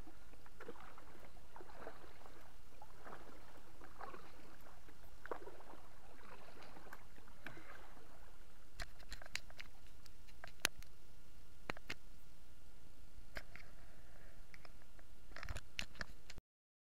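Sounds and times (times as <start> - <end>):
paddle swishing through water: 0.0 - 10.8
sharp clicks and light knocks: 8.8 - 11.0, 11.7 - 12.0, 14.5 - 16.4.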